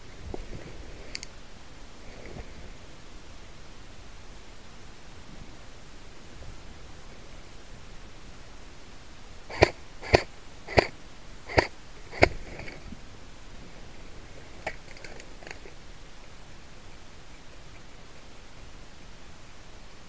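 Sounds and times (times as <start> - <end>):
faint clicks: 1.1 - 1.4
airsoft rifle shots: 9.5 - 12.5.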